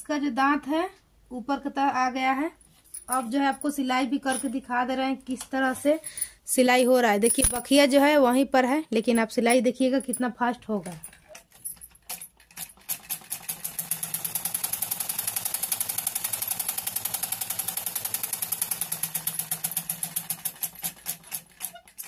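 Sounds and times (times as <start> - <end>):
sewing machine stitching: 12.1 - 22.0.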